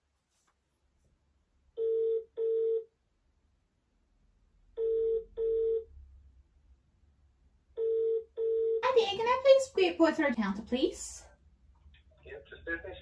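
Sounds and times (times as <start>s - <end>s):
telephone ringback tone: 1.8s - 2.9s, 4.8s - 5.9s, 7.8s - 8.8s.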